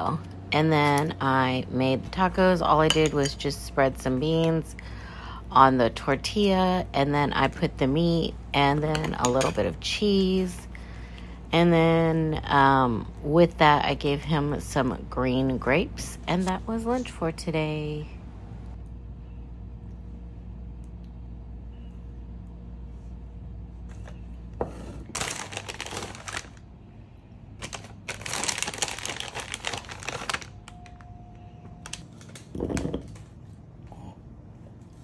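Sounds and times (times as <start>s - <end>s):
low steady hum: 0.0s - 35.0s
plastic packaging crinkling: 25.1s - 26.7s, 27.6s - 31.1s, 31.8s - 33.3s.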